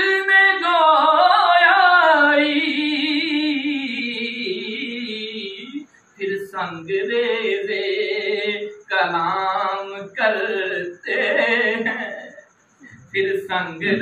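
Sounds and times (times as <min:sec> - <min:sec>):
man singing unaccompanied: 0:00.0 - 0:14.0.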